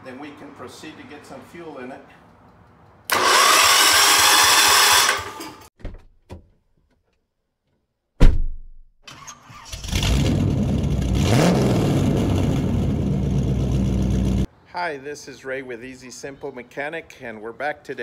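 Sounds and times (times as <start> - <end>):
electric starter cranking engine: 3.1 - 5.6
engine rumbling and revving: 9.7 - 14.5.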